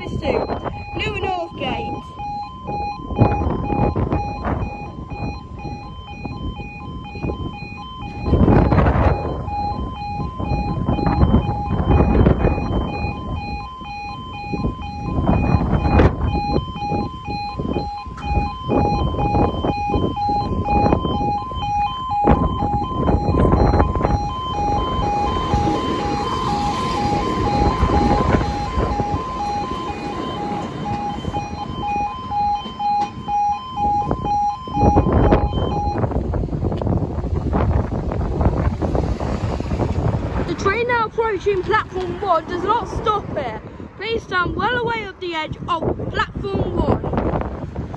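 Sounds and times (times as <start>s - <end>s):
two-tone yodel alarm: 0.0s - 36.2s
diesel train passing: 24.8s - 33.2s, 36.2s - 45.2s
heavy uneven rumble: 34.2s - 44.9s.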